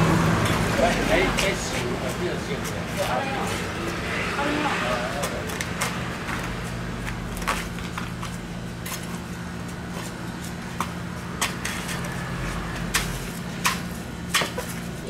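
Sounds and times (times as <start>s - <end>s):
low hum: 2.2s - 14.2s.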